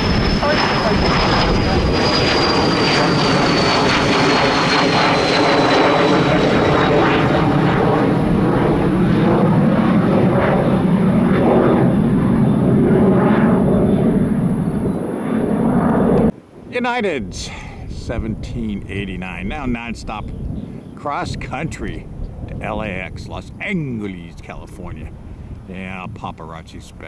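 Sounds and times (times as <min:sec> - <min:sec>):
jet engines passing overhead: 0:00.0 - 0:27.0.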